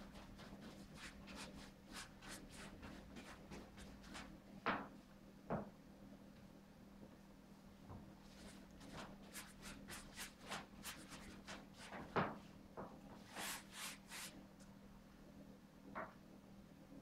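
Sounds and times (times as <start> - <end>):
paintbrush strokes on canvas: 0.0 - 4.3, 8.2 - 12.2, 13.2 - 14.4.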